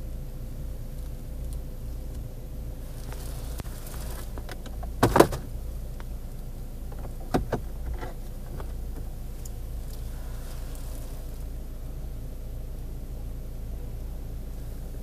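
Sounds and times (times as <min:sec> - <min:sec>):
steady low hum: 0:00.0 - 0:15.0
clicks and knocks inside a car: 0:00.9 - 0:11.3.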